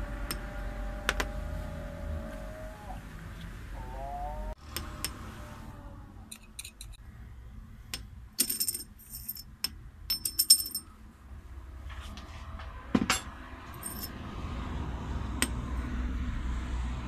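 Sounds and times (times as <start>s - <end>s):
steel parts clinking: 6.3s - 7.0s, 7.9s - 10.9s.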